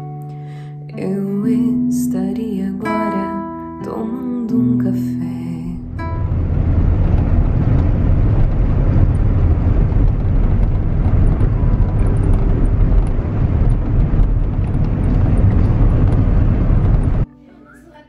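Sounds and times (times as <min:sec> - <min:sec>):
car engine and tyre rumble: 0:05.9 - 0:17.2.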